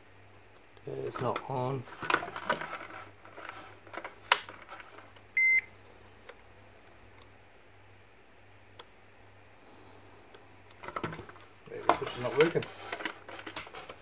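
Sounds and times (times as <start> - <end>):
multimeter beep: 5.4 - 5.7.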